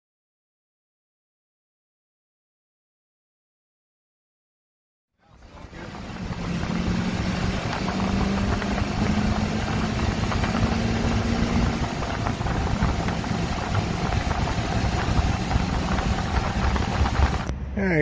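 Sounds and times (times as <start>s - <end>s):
truck engine and road noise: 5.2s - 18.0s.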